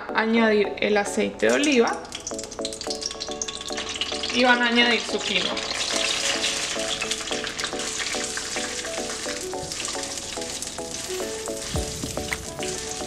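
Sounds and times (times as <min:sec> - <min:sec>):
quinoa sizzling in oil: 0:01.5 - 0:13.0.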